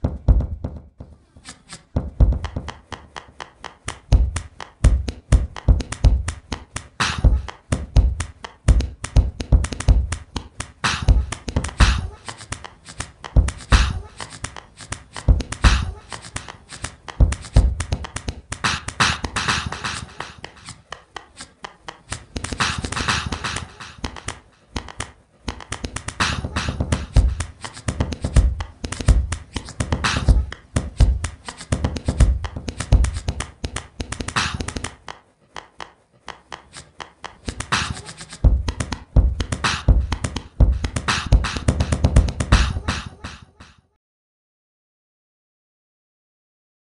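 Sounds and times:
hip-hop beat: 0:01.9 - 0:43.8
scratch-like hissing: 0:10.8 - 0:35.2, 0:36.5 - 0:39.0.

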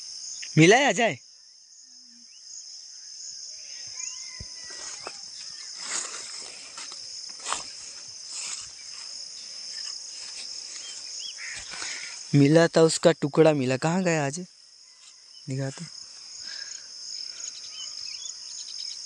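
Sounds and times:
insects chirring: 0:00.0 - 0:19.0
rustling of leafy undergrowth: 0:04.0 - 0:12.5.

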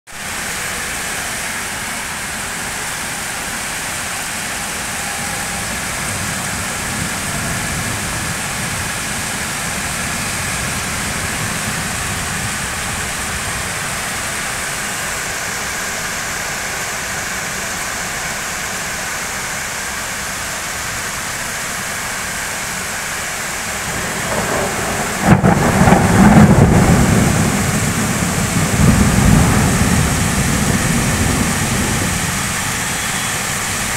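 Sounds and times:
heavy rain on street: 0:00.1 - 0:33.9
thunder clap and rumble: 0:05.4 - 0:14.6, 0:23.7 - 0:32.9.

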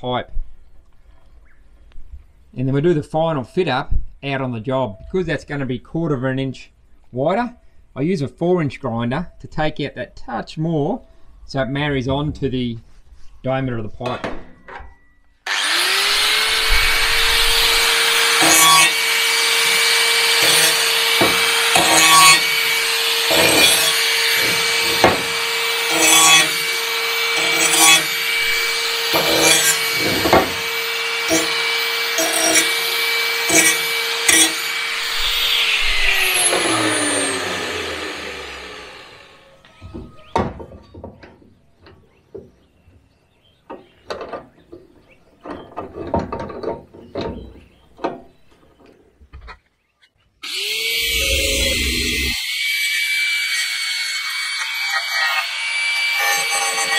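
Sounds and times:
angle grinder grinding steel: 0:15.5 - 0:39.7, 0:50.4 - 0:56.9.

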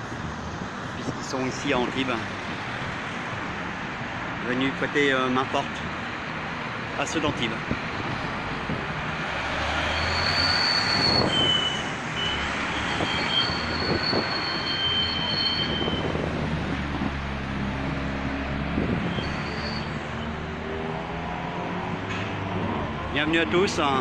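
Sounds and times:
cars passing: 0:00.0 - 0:24.0
high-pitched squeals: 0:09.8 - 0:16.1, 0:19.0 - 0:20.4.

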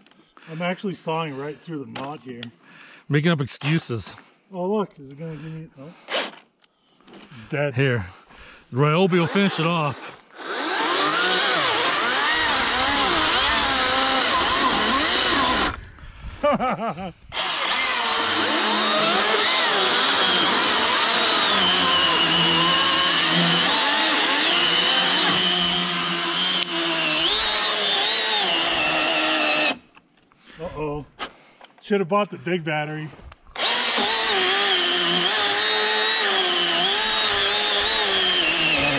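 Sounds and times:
chainsaw cutting through log: 0:09.1 - 0:15.8, 0:17.3 - 0:29.8, 0:33.6 - 0:38.9.

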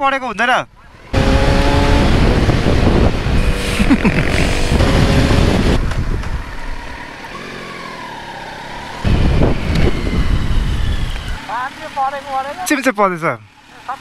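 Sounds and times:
road noise: 0:00.0 - 0:14.0
rushing wind: 0:00.7 - 0:11.5
motorcycle engine running: 0:01.1 - 0:12.7.

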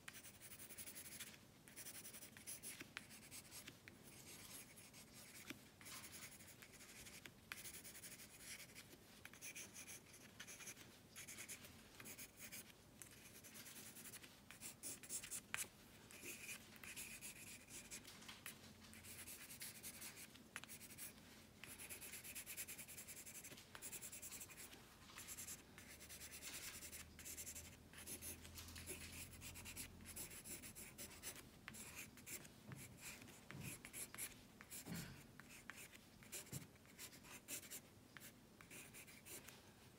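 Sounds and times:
pencil scratching on paper: 0:00.0 - 0:18.0, 0:18.9 - 0:39.5.

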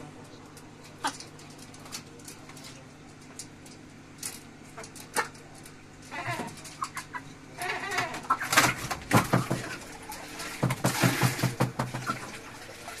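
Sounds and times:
chickens clucking: 0:00.4 - 0:02.1, 0:04.4 - 0:13.0.

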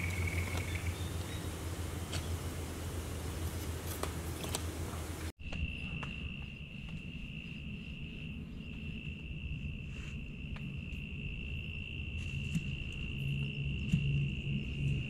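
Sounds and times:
insect trilling: 0:00.0 - 0:01.2.

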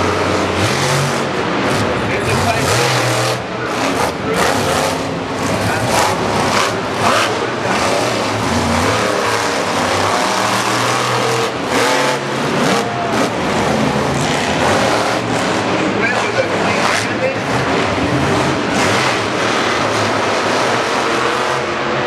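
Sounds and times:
monster truck engines revving: 0:00.0 - 0:22.0.

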